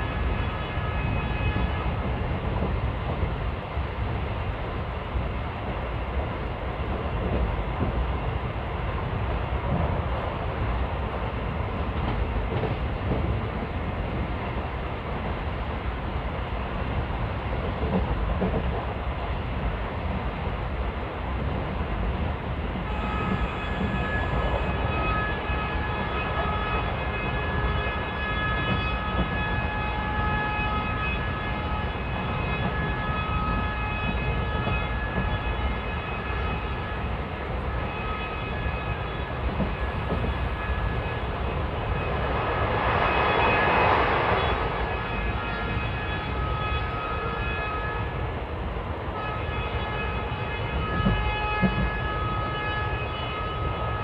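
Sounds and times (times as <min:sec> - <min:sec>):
locomotive horn: 0:00.0 - 0:01.9, 0:22.9 - 0:42.1, 0:44.4 - 0:48.2, 0:49.2 - 0:54.0
train rumbling on track: 0:00.0 - 0:54.0.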